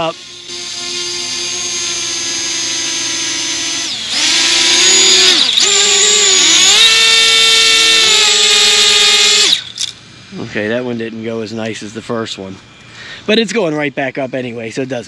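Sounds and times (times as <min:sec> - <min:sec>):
drone propellers whining: 0:00.0 - 0:10.2.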